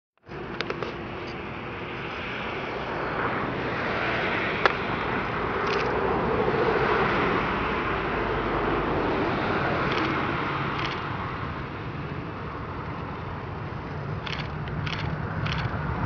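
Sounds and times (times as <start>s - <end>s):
jet engines at take-off power: 0.2s - 16.0s
sharp click: 9.9s - 10.2s, 10.8s - 11.1s, 14.2s - 15.8s.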